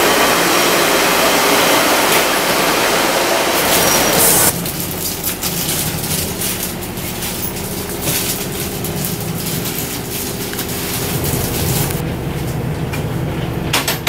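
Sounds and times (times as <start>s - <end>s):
loud rush: 0.0s - 4.6s
train diesel engine hum: 0.0s - 14.0s.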